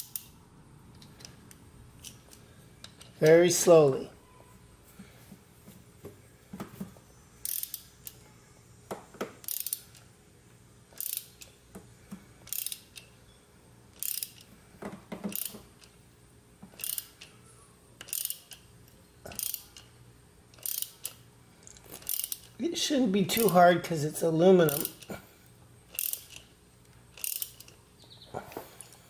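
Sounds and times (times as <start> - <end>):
ratchet clicking: 0.0 - 0.3, 7.4 - 8.2, 9.4 - 10.0, 10.9 - 11.6, 12.4 - 13.1, 13.9 - 14.5, 15.3 - 16.0, 16.7 - 17.3, 18.0 - 18.7, 19.3 - 19.9, 20.5 - 22.6, 24.6 - 25.1, 25.9 - 26.5, 27.1 - 27.8.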